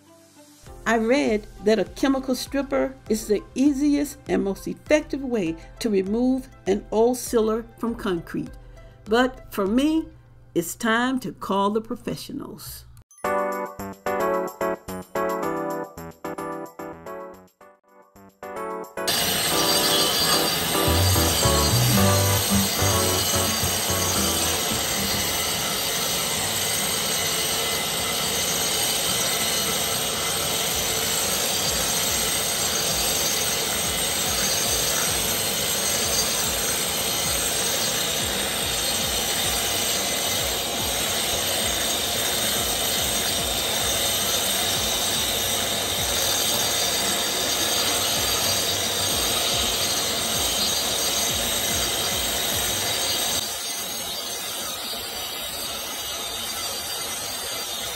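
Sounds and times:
angle grinder grinding concrete: 0:19.1 - 0:57.9.

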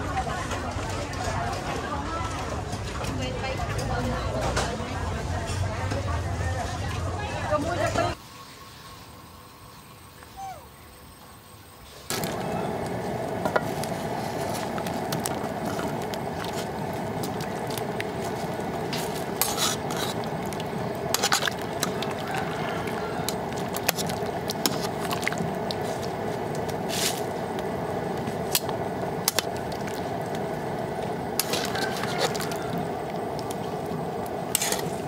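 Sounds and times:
water boiling in a wok: 0:00.0 - 0:35.0
water splashing and dripping: 0:14.7 - 0:35.0.

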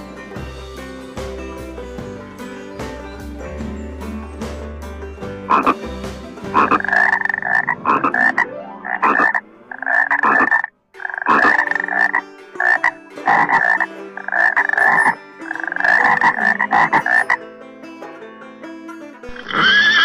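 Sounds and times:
frog croaking: 0:05.5 - 0:05.8, 0:06.5 - 0:17.4.

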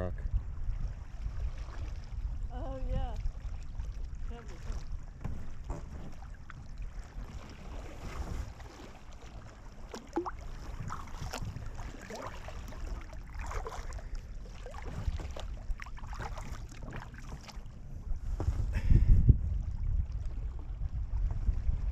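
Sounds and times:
wind rumble on microphone: 0:00.0 - 0:21.9
kayak paddles splashing: 0:00.8 - 0:18.4
water dripping from paddle blades: 0:09.9 - 0:17.6.

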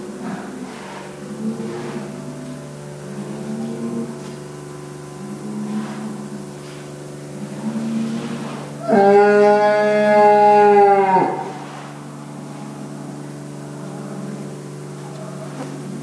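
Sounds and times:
steady mechanical hum: 0:00.0 - 0:16.0
cow mooing: 0:03.0 - 0:04.3, 0:05.2 - 0:06.5, 0:07.3 - 0:11.9.

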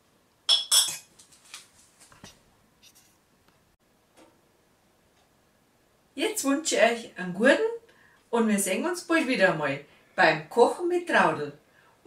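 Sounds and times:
soft ticks and scrapes: 0:01.2 - 0:03.6.

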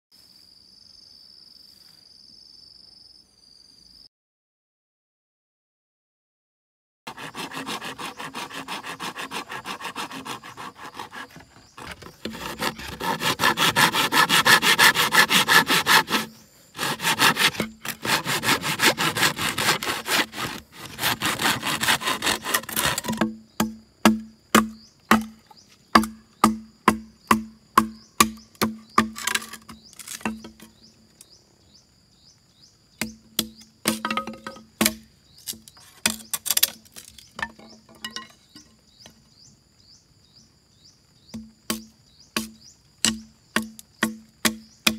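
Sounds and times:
hand saw cutting bamboo: 0:07.1 - 0:30.5, 0:33.4 - 0:37.2, 0:41.4 - 0:44.9
machete striking bamboo: 0:17.1 - 0:30.7, 0:33.0 - 0:38.3, 0:41.3 - 0:44.9.

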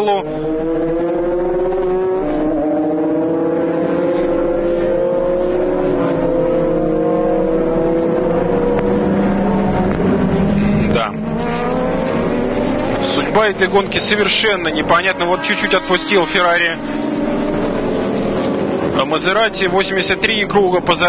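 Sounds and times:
racing car engines at high revs: 0:00.0 - 0:21.0.

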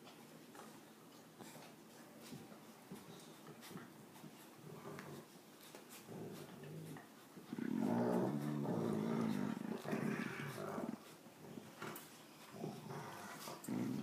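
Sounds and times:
dog growling: 0:06.0 - 0:14.0.

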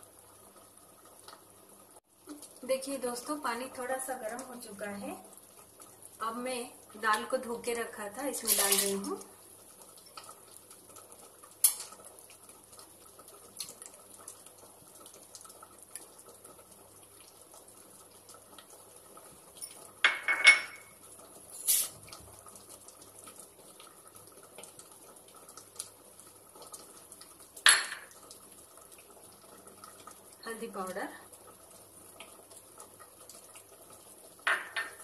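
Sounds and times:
utensils clinking against pots: 0:08.4 - 0:09.1, 0:21.5 - 0:21.9
pressure cooker hissing: 0:21.6 - 0:22.0.

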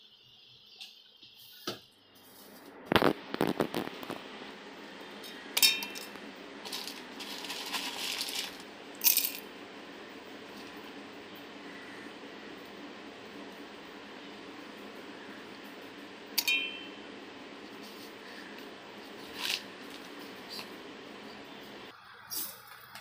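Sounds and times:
spices clattering into metal jar: 0:06.7 - 0:09.4
sharp metallic pings: 0:16.4 - 0:17.0.

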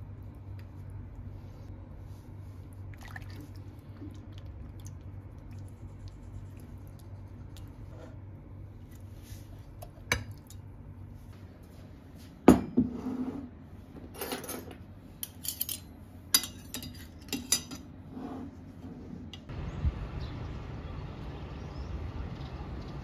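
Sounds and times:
dishes and cutlery clinking: 0:14.2 - 0:17.9.

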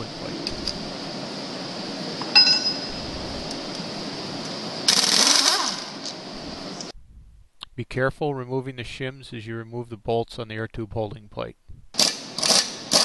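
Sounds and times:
steady hum: 0:00.0 - 0:13.0
ringing metallic clink: 0:02.3 - 0:03.0
pneumatic impact wrench: 0:04.8 - 0:06.2, 0:12.0 - 0:13.0.

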